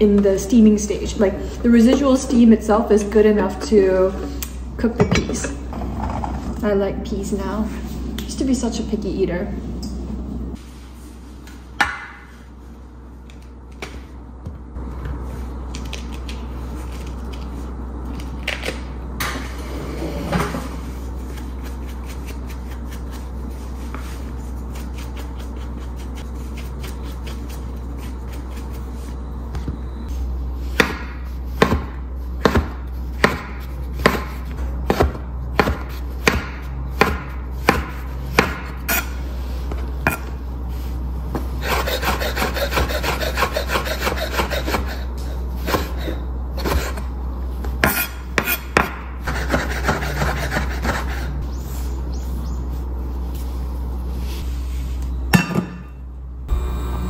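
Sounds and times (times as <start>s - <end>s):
knife chopping on wooden board: 30.8s - 38.8s
knife scraping the board: 41.6s - 45.0s.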